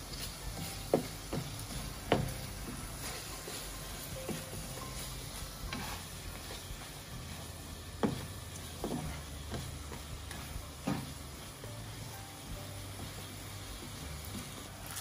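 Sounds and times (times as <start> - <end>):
low sizzle: 0.0 - 15.0
spatula scraping a frying pan: 0.0 - 15.0.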